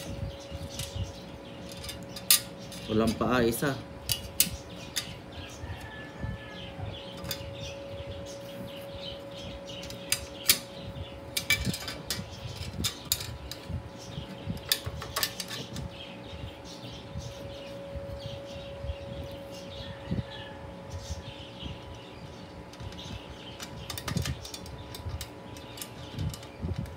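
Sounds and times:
steady hum: 0:00.0 - 0:26.9
metal parts clicking and clinking: 0:01.6 - 0:03.3, 0:11.4 - 0:13.7, 0:14.6 - 0:15.8.

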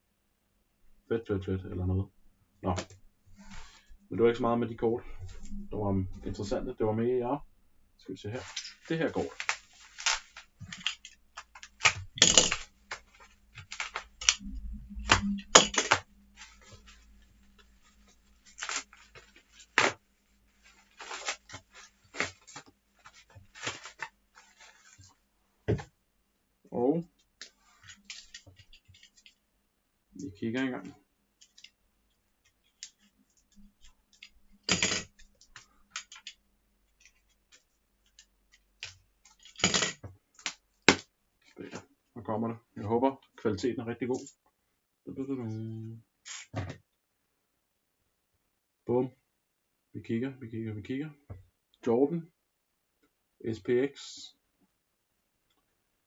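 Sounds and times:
bubble wrap crinkling: 0:08.4 - 0:25.2
cardboard mailer clicks and scratches: 0:08.5 - 0:14.4, 0:15.1 - 0:16.7, 0:34.6 - 0:35.2, 0:38.8 - 0:41.0
cardboard scrape: 0:20.6 - 0:25.1.

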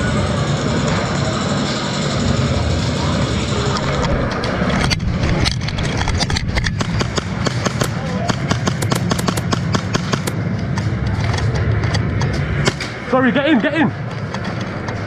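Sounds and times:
airsoft guns firing: 0:06.8 - 0:10.4
pellets striking: 0:07.5 - 0:10.4.

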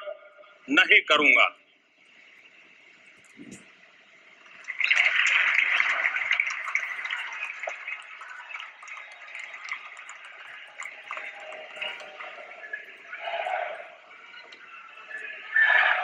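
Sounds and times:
audience applauding: 0:04.4 - 0:16.0.

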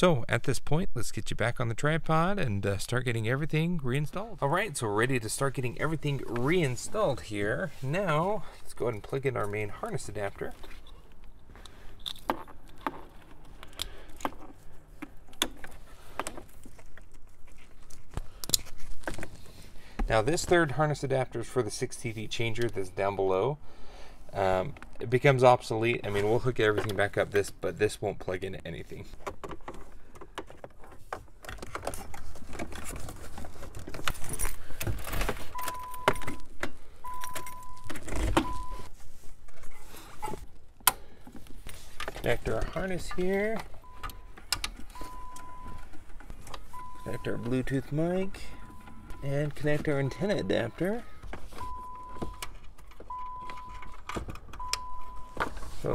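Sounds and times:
short beeps: 0:35.6 - 0:36.4, 0:37.0 - 0:38.9, 0:43.8 - 0:45.8, 0:46.7 - 0:52.5, 0:54.6 - 0:55.4.

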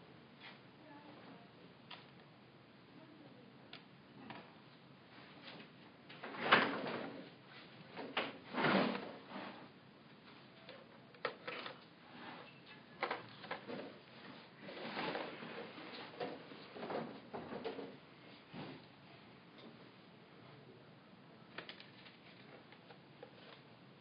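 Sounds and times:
handling scrapes and rustles: 0:13.4 - 0:16.8.

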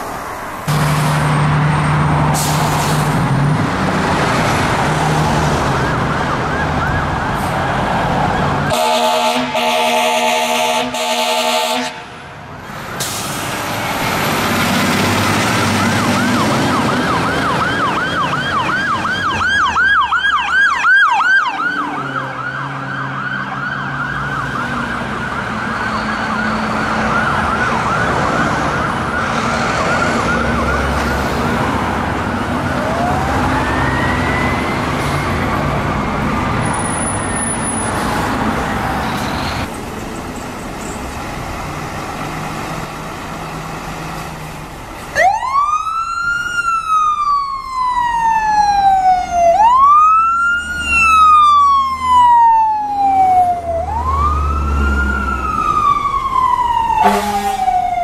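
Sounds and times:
engine and traffic noise: 0:00.0 - 0:58.0
fire engine siren yelp: 0:00.7 - 0:12.3, 0:13.0 - 0:39.8, 0:44.1 - 0:58.0
siren wail: 0:04.6 - 0:12.0, 0:15.5 - 0:37.8, 0:45.1 - 0:58.0.

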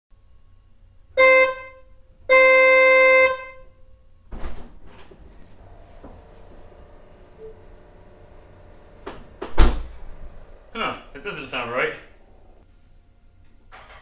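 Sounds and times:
car horn: 0:01.1 - 0:04.0.

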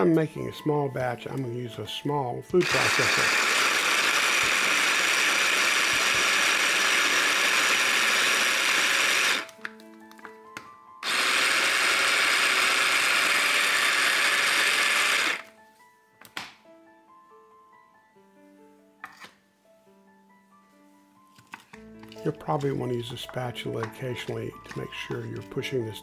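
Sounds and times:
food processor motor chopping: 0:02.6 - 0:09.6, 0:11.0 - 0:15.5.

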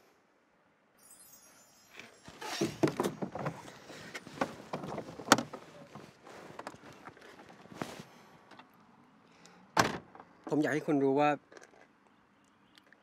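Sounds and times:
suitcase knocking and scraping: 0:02.4 - 0:05.7.

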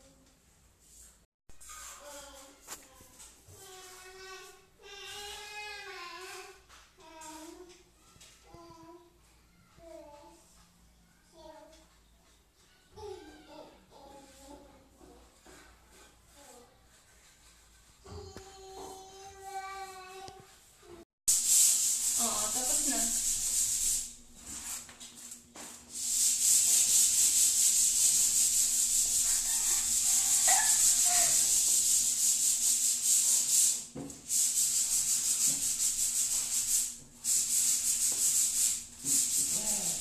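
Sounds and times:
tiles being sanded by hand: 0:14.2 - 0:18.0, 0:21.3 - 0:40.0.

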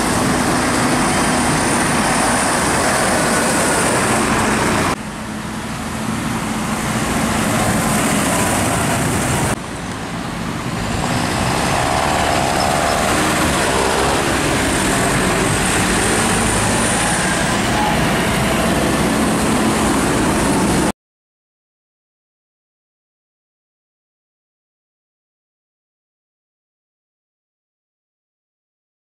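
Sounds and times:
tractors driving past: 0:00.0 - 0:20.9
tyres on wet tarmac: 0:00.0 - 0:20.9.

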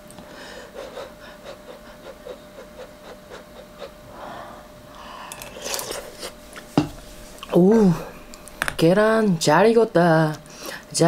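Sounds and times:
breath: 0:00.3 - 0:00.8, 0:04.1 - 0:05.6, 0:10.5 - 0:10.9.

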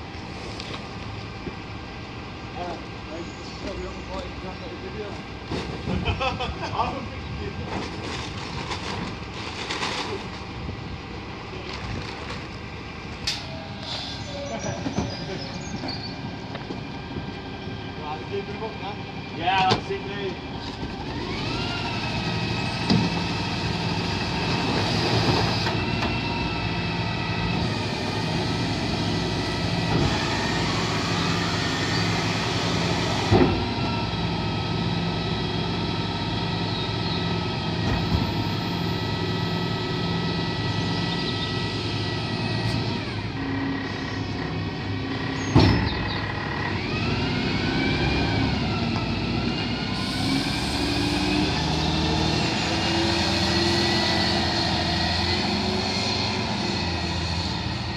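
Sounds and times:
diesel lorry engine running: 0:00.0 - 0:57.9
hydraulic bin lift whining: 0:37.6 - 0:56.8.

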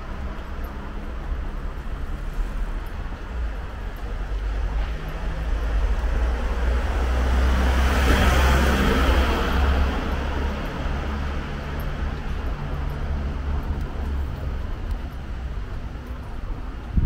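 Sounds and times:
low rumble of street traffic: 0:00.0 - 0:17.0
vehicle driving past: 0:04.4 - 0:14.6.

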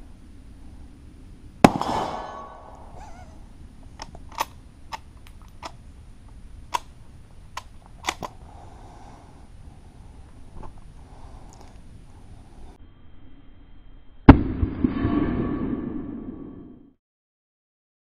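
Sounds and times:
rifle shot: 0:01.6 - 0:02.9, 0:14.3 - 0:16.0.

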